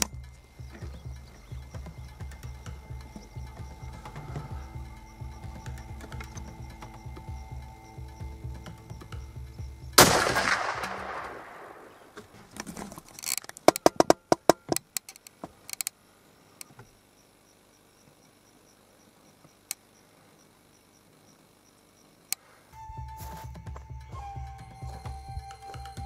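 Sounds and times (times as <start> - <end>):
rifle shot: 10.0 - 12.1.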